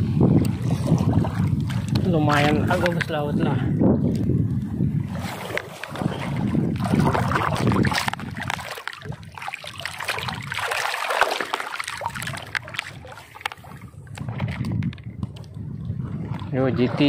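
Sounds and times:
seawater sloshing and splashing: 0.0s - 17.0s.

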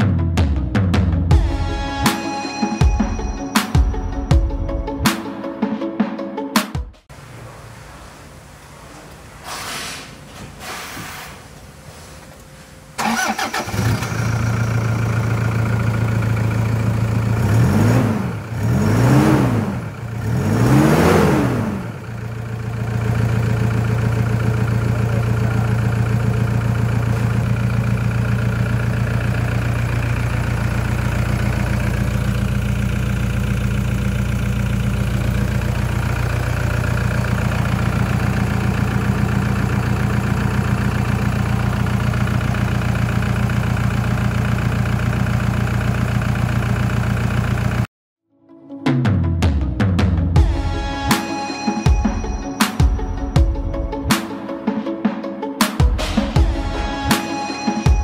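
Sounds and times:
diesel engine idling and revving: 12.8s - 47.9s.

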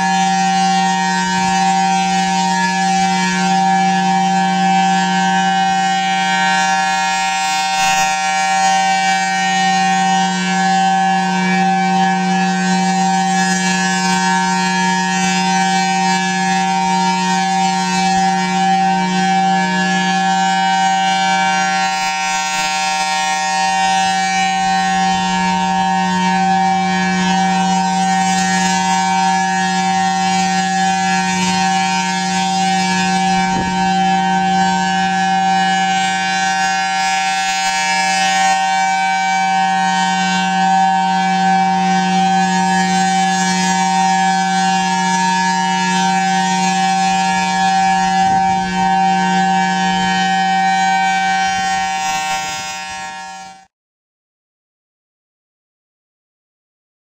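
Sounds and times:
civil defense siren: 0.0s - 53.7s.

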